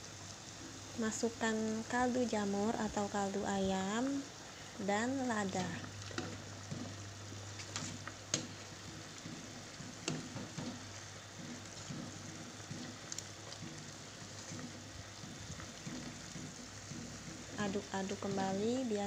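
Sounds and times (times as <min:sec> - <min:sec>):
ladle stirring soup in pot: 0:05.6 - 0:17.8.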